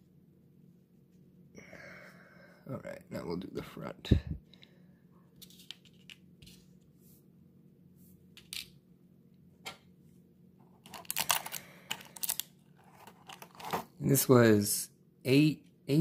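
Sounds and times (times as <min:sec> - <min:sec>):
small parts clicking and tapping: 0:10.8 - 0:13.8.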